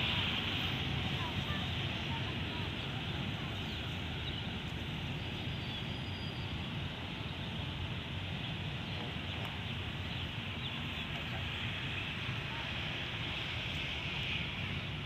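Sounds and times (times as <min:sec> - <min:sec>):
distant locomotive rumble: 0:00.0 - 0:15.0.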